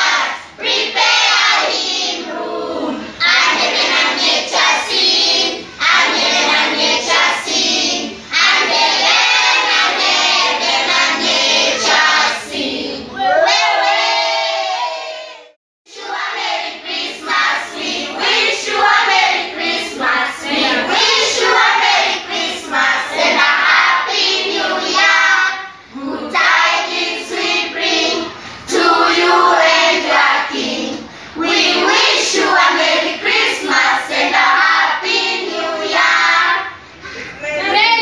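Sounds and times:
children singing a carol: 0.0s - 13.2s, 15.9s - 37.2s.

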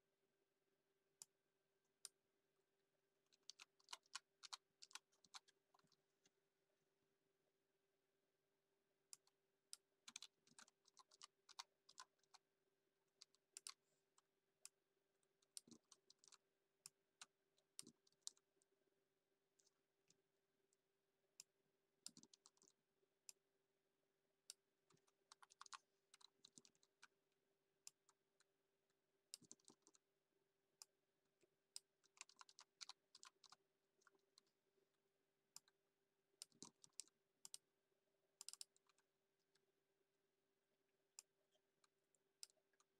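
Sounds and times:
keyboard typing: 10.1s - 12.4s, 32.2s - 33.6s.

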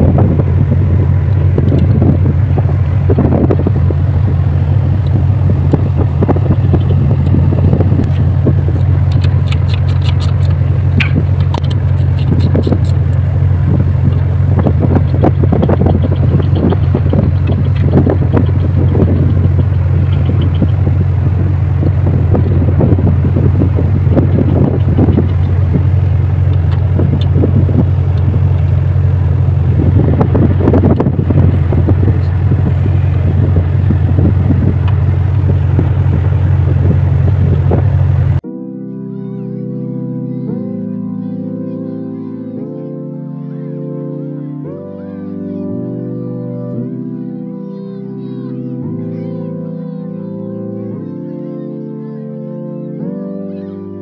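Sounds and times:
steady low rumble: 0.0s - 38.4s
wind buffeting microphone: 0.0s - 38.4s
small clicks from hands: 9.1s - 13.0s.

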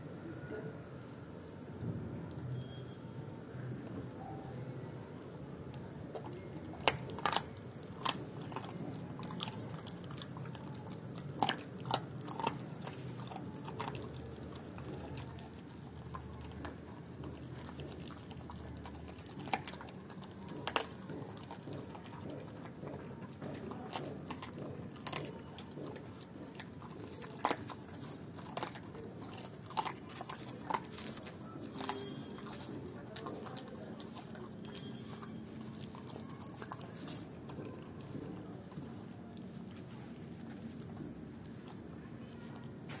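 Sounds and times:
dog chewing and crunching: 5.3s - 43.0s
bones cracking: 6.1s - 38.9s.

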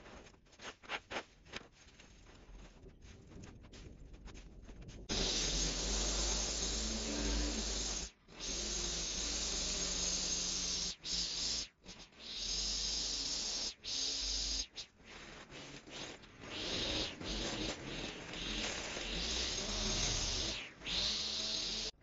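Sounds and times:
string trimmer whirring: 5.1s - 8.1s, 16.2s - 22.0s.

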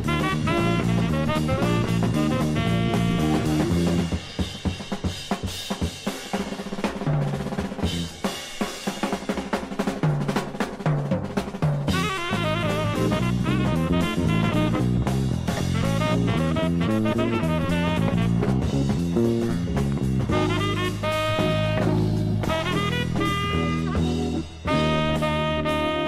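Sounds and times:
saxophone and brass: 0.0s - 4.5s, 11.9s - 26.0s
drum fill: 0.0s - 26.0s
jazz band playing: 0.0s - 26.0s.

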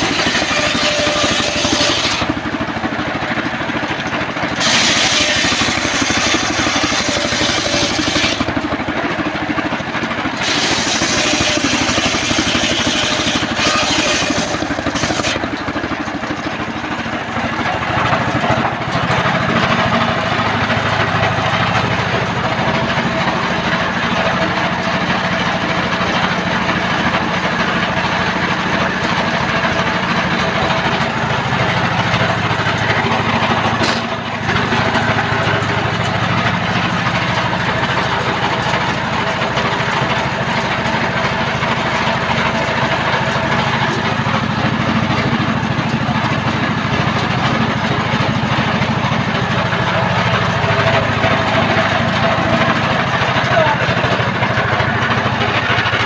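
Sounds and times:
saw blade ripping through wood: 0.0s - 2.4s, 4.6s - 8.5s, 10.4s - 15.5s
engine running steadily: 0.0s - 56.0s.

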